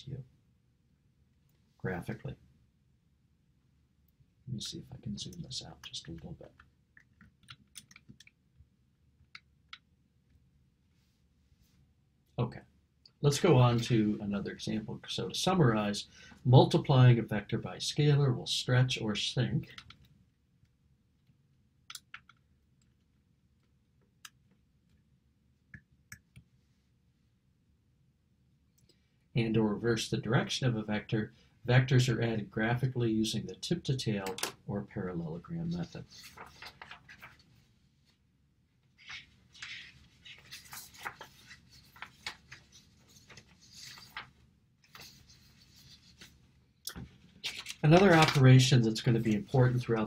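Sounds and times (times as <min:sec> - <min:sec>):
paper rustling: 0:35.7 - 0:37.7, 0:38.9 - 0:46.4, 0:47.0 - 0:49.6.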